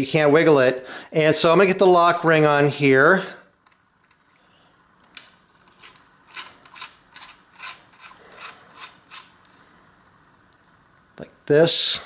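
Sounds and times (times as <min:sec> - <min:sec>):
metal-on-metal scraping: 0:05.7 - 0:09.4.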